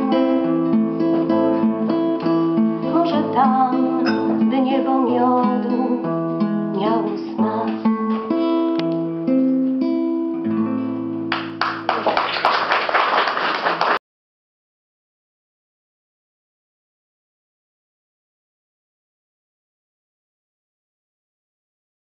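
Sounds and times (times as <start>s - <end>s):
woman singing: 0.0s - 0.6s, 2.8s - 8.5s
acoustic guitar chords: 0.0s - 12.0s
applause: 11.3s - 14.0s.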